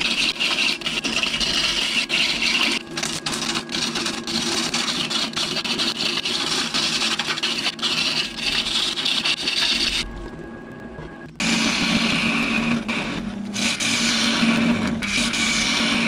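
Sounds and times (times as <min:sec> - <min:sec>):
gouge scraping spinning wood: 0:00.0 - 0:10.1.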